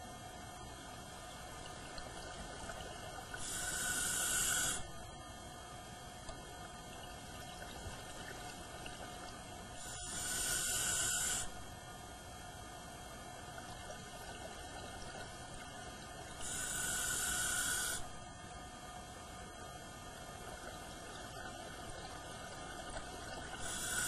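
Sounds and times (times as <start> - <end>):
low underwater background: 0.0 - 24.0
scuba regulator hissing: 3.4 - 4.8, 9.8 - 11.5, 16.4 - 18.0, 23.6 - 24.0.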